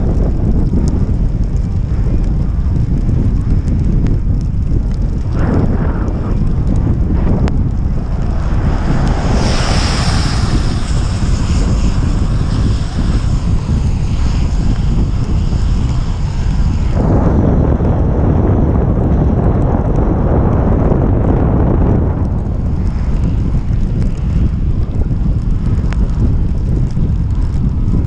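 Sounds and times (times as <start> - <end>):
wind buffeting microphone: 0.0 - 28.0
tyres hissing on wet asphalt: 5.0 - 17.0.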